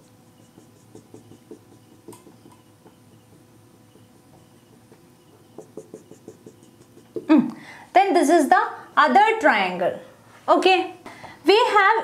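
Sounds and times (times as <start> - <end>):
marker on whiteboard: 0.0 - 7.4.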